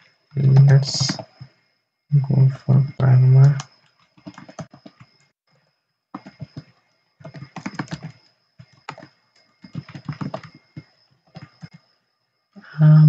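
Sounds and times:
keyboard typing: 0.4 - 1.5, 2.8 - 5.4, 6.1 - 11.9.

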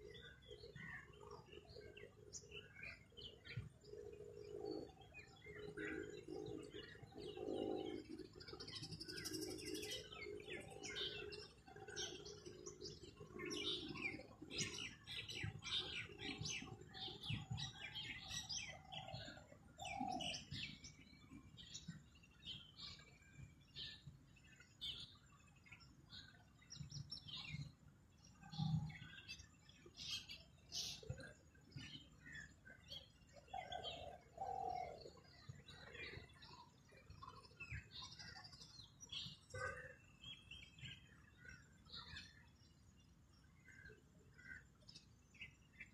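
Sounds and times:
birds chirping: 0.0 - 45.9
low cooing calls: 33.5 - 36.3.

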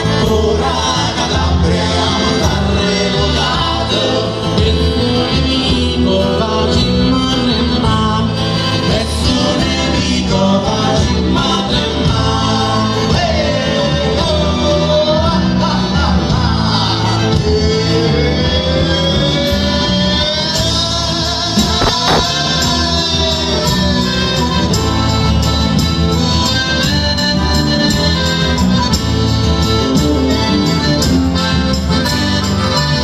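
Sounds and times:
man singing: 0.0 - 24.7
folk band playing: 0.0 - 33.0
sharp drum or cymbal hit: 21.8 - 22.3.

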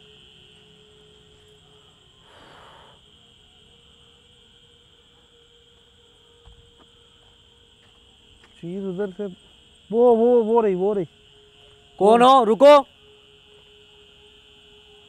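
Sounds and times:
crickets chirring: 0.0 - 15.0
faint low hum: 0.0 - 15.0.

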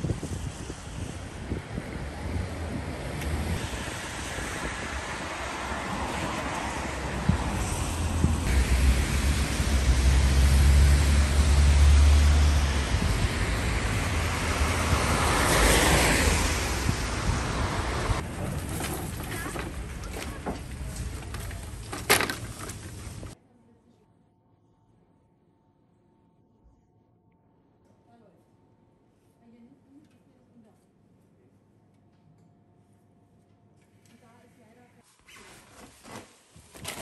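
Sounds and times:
vehicle engine rumble: 0.0 - 23.4
tyre hiss of passing vehicle: 0.1 - 18.2.

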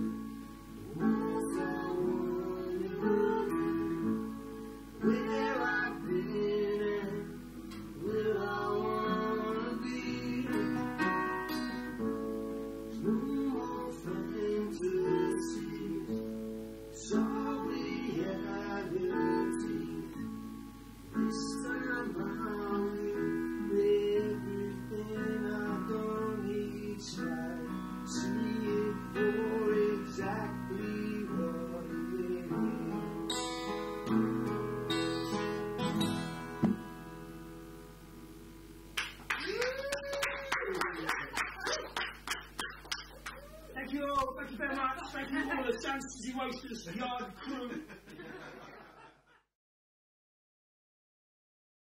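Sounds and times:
piano playing chords: 0.0 - 39.0
acoustic guitar strumming: 0.0 - 39.2
man singing: 0.9 - 4.2, 5.0 - 11.3, 12.9 - 20.3, 21.2 - 33.4.

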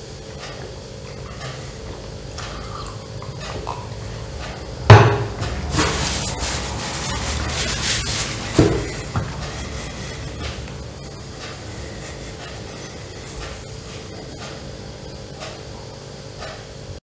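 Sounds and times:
rustling: 5.7 - 10.1.

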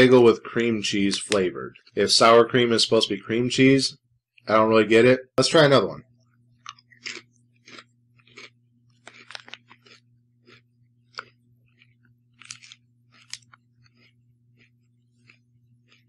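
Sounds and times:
faint steady hum: 0.0 - 16.0
person chewing potato chips: 6.6 - 16.0.

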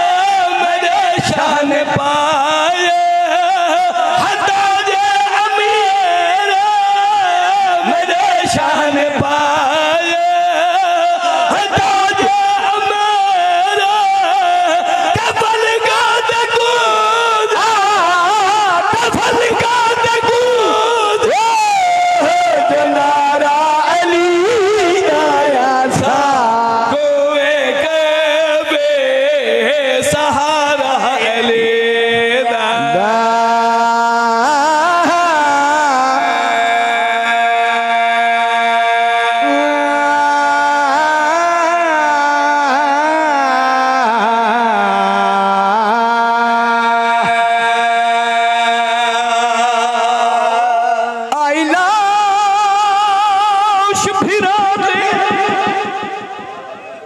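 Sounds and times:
men chanting: 0.0 - 57.0
man singing held note: 32.1 - 37.0.

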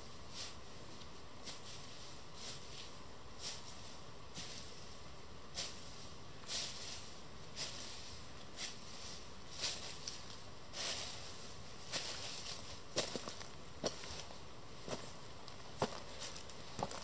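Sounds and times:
footsteps crunching dry leaves: 6.5 - 17.0.

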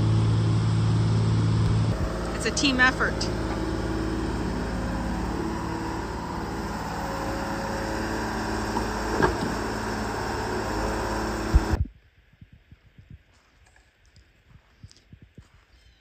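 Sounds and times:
diesel engine running under load: 0.0 - 11.8.

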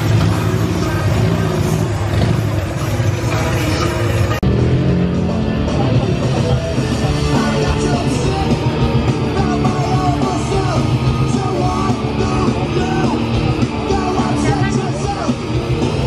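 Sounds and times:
punk rock music: 0.0 - 16.0
person yelling vocals: 9.3 - 15.4.

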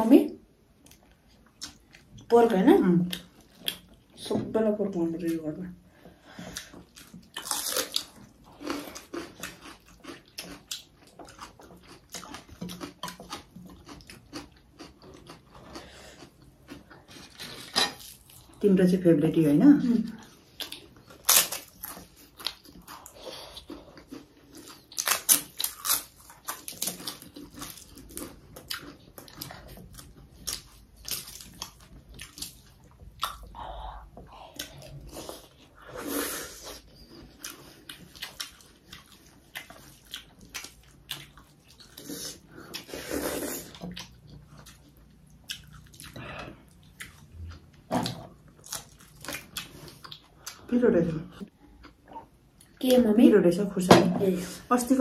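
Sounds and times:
people chewing and lip-smacking: 6.0 - 18.5, 20.2 - 35.7, 36.6 - 43.0, 43.6 - 50.7
breathy sounds: 46.1 - 46.8.

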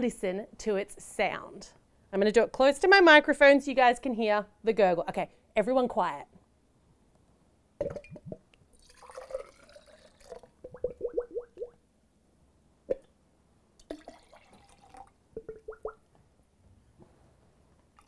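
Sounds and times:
juice pouring into a glass: 8.0 - 11.1, 13.8 - 15.8.

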